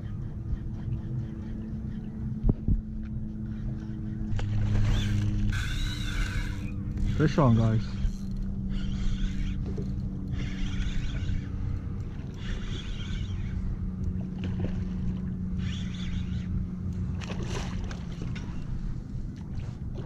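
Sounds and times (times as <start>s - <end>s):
steady low hum: 0.0s - 20.0s
wind rumble on microphone: 0.0s - 20.0s
fishing reel cranking: 4.6s - 13.7s, 15.5s - 16.6s.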